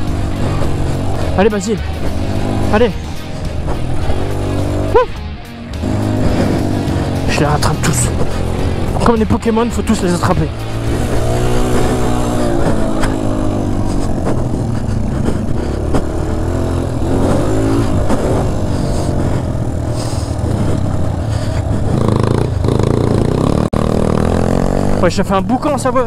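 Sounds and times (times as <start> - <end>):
dirt bike engine revving: 0.0 - 26.0.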